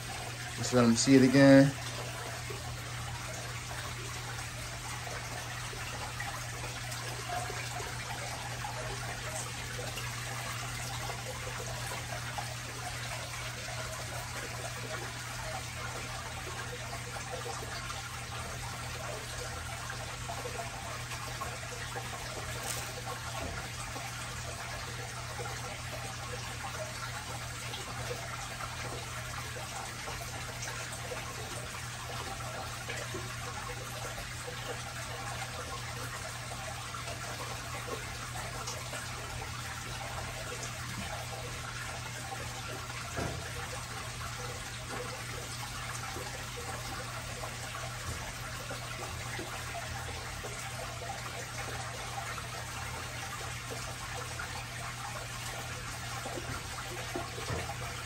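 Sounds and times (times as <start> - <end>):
aquarium water trickling: 0.0 - 58.0.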